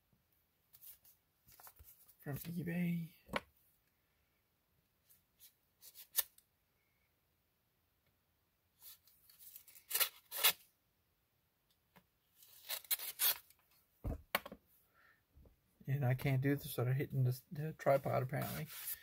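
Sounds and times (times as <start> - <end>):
packaging rustling and tearing: 9.3 - 10.6, 12.4 - 13.6.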